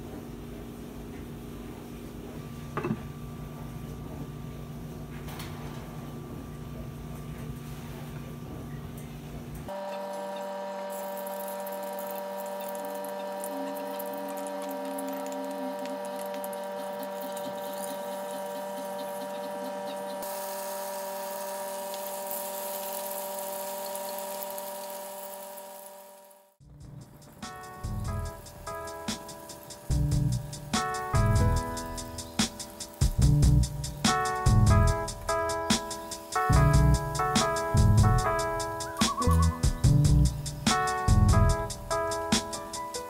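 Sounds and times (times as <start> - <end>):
tofu sizzling in oil: 20.2 - 26.4
steady whine: 26.6 - 43.0.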